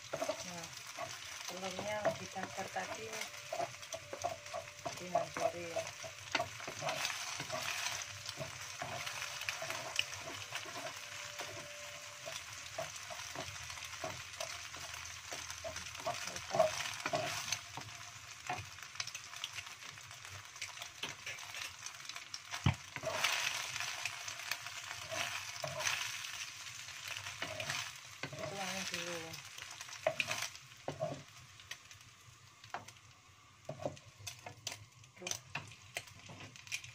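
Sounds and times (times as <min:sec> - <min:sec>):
wooden spatula scraping pan: 0:00.0 - 0:18.6, 0:22.5 - 0:26.4, 0:27.0 - 0:29.0, 0:29.8 - 0:31.3
eggs sizzling in oil: 0:00.0 - 0:36.9.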